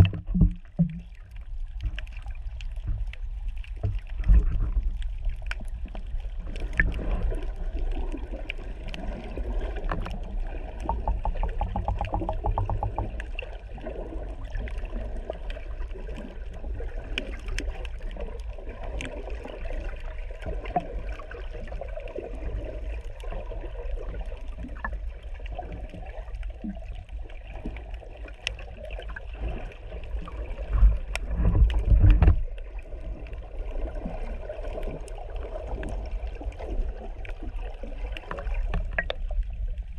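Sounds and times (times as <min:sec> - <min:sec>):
low water surge: 0:00.0 - 0:39.9
underwater rumble of moving water: 0:00.0 - 0:39.9
sharp underwater clicks: 0:09.8 - 0:13.6, 0:38.1 - 0:39.5.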